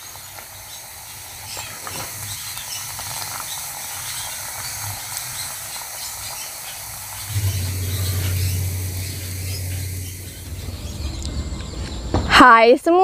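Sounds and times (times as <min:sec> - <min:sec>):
batter sizzling in hot oil: 0:00.0 - 0:11.2
low steady hum: 0:07.2 - 0:12.4.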